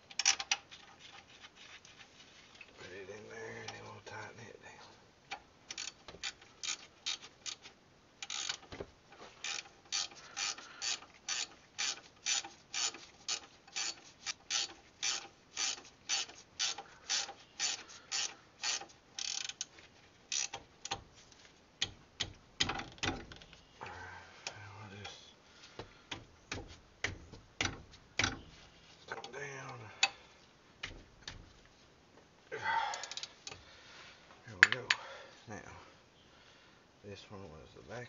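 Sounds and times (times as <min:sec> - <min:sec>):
socket ratchet clicking: 0:05.7 - 0:07.6, 0:09.4 - 0:19.7, 0:20.3 - 0:21.0.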